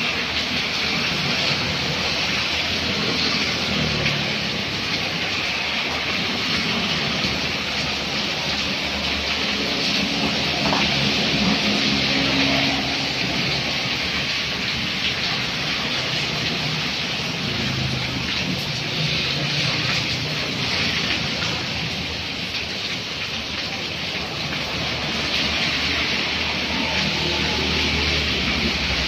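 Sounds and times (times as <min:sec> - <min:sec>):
rain on a wet road: 0:00.0 - 0:29.0
vehicles driving through water: 0:00.0 - 0:29.0.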